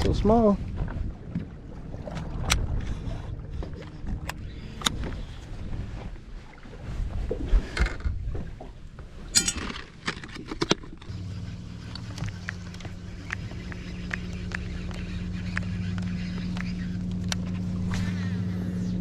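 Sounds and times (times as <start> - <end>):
boat motor humming: 0.0 - 19.0
wind and water noise: 0.0 - 19.0
gear clattering on boat deck: 9.2 - 11.1.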